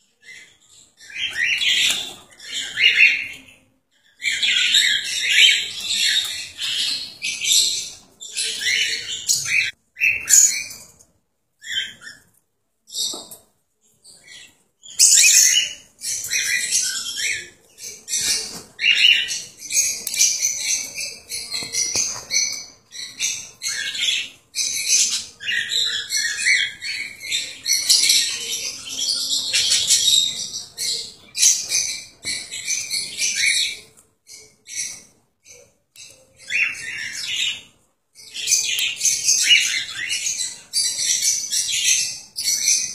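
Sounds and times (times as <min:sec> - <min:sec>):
cockatiels chirping: 0:00.1 - 0:11.0, 0:11.6 - 0:13.5, 0:14.1 - 0:42.9.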